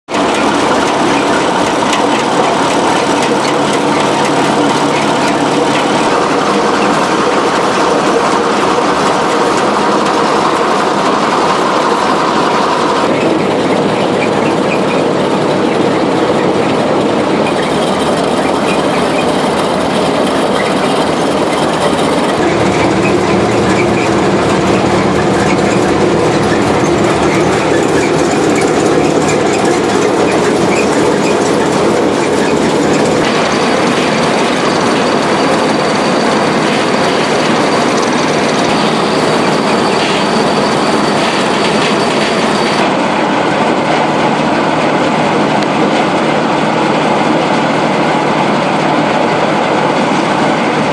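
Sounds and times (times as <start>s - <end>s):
combine threshing mechanism clattering: 0.1s - 42.8s.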